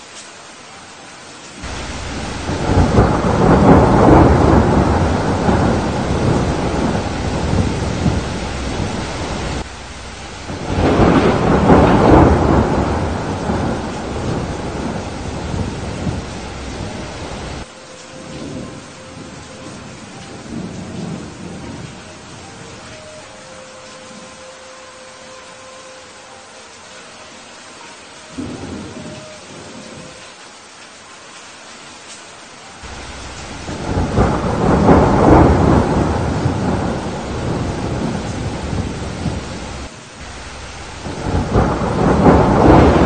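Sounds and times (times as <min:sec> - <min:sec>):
steady rain: 0:00.0 - 0:43.0
thunder rolling: 0:01.6 - 0:22.0, 0:32.8 - 0:43.0.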